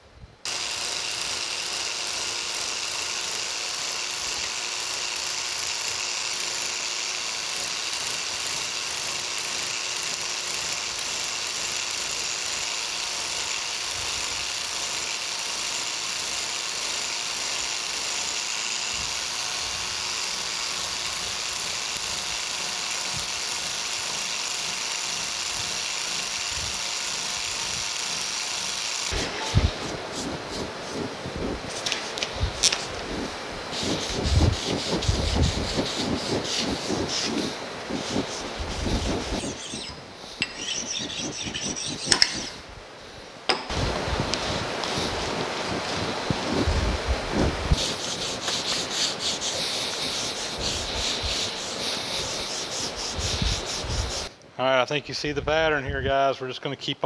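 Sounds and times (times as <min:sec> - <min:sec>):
power scraper scraping metal: 0:00.5 - 0:42.6, 0:47.7 - 0:54.3.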